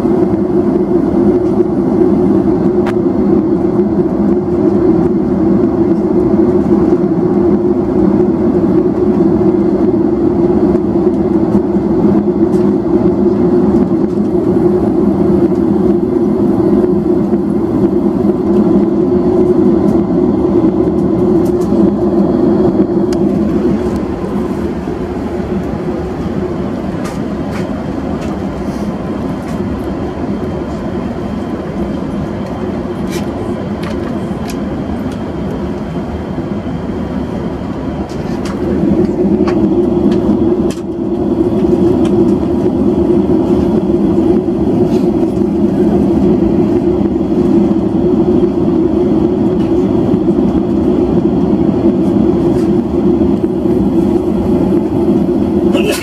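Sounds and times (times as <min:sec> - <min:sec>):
aircraft engine hum: 0:00.0 - 0:56.0
cabin airflow rush: 0:00.0 - 0:56.0.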